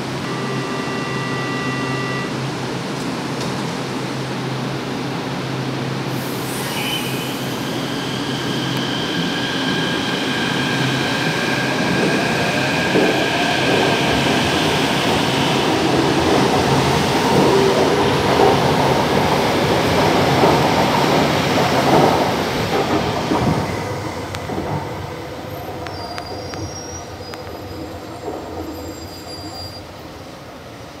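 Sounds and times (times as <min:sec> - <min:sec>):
electric train whine: 0:00.0 - 0:31.0
steel wheels rolling on rail: 0:07.8 - 0:30.2.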